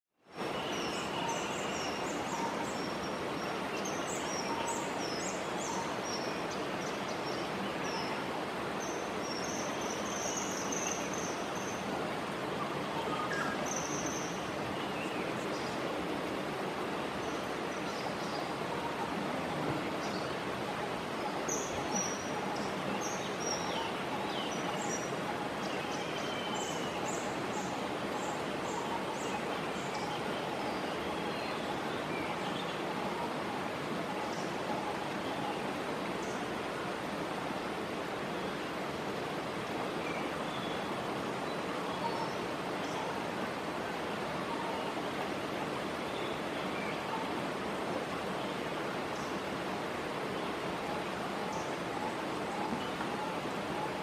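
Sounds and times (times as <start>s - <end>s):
steady hiss of background noise: 0.2s - 54.0s.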